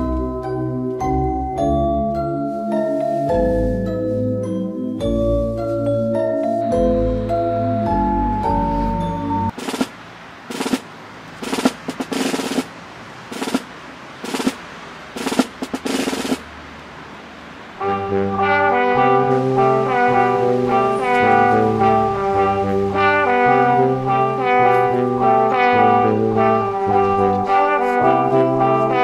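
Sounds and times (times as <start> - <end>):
drum rolls: 9.5 - 16.5, 17.8 - 29.0
jaunty brass tune: 17.8 - 29.0.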